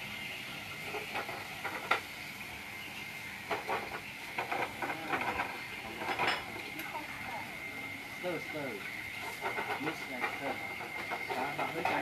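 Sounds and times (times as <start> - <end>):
gas stoves hissing: 0.0 - 12.0
spatulas scraping pans: 0.8 - 2.0, 3.5 - 6.7, 9.1 - 12.0.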